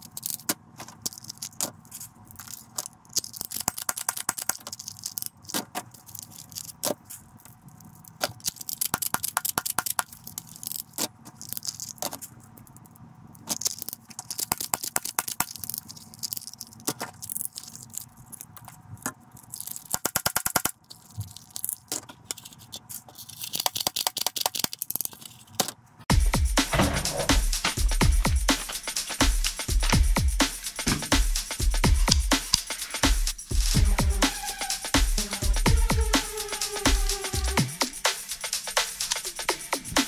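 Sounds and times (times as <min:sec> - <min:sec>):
rapid clicks: 0:26.2 - 0:40.0.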